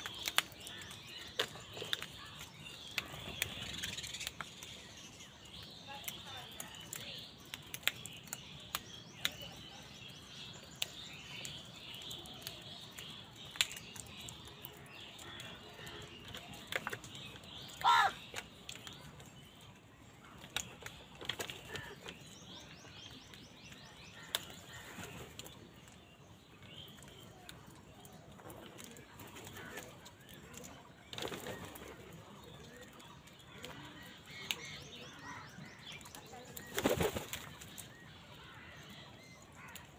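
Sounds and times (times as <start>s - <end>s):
bird chatter: 0.0s - 39.9s
crow cawing: 17.8s - 18.2s.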